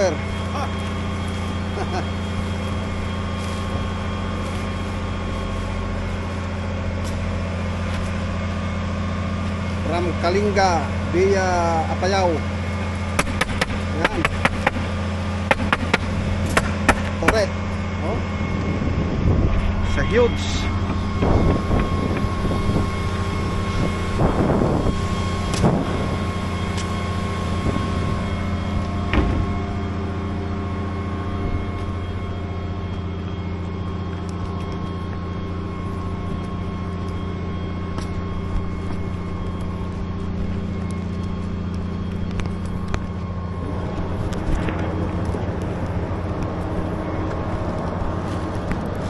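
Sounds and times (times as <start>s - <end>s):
motor running: 0.0s - 49.0s
sharp knocks: 13.2s - 14.9s, 15.5s - 17.4s.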